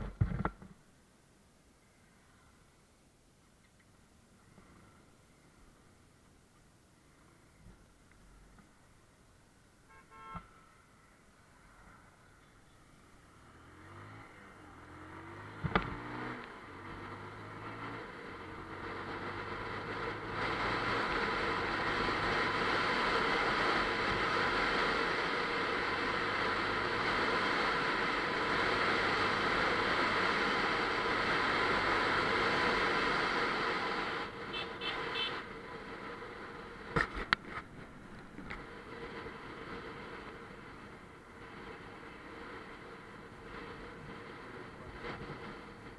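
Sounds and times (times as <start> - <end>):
motorcycle engine accelerating: 13.2 - 34.4.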